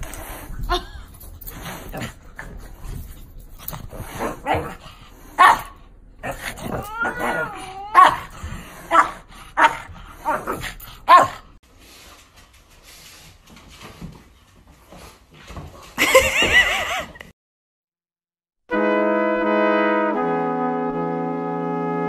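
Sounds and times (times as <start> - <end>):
dog whining: 6.6 - 8.3.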